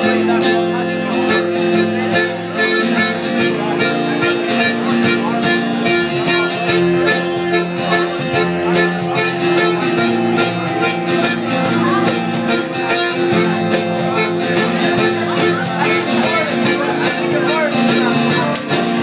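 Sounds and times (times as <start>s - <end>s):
electric bass: 0.0s - 19.0s
strummed acoustic guitar: 0.0s - 19.0s
hand drum beat: 8.1s - 19.0s.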